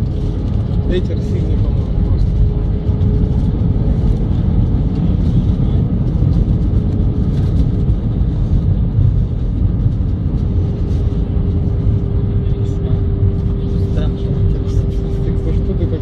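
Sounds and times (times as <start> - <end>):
airplane cabin rumble: 0.0 - 16.0.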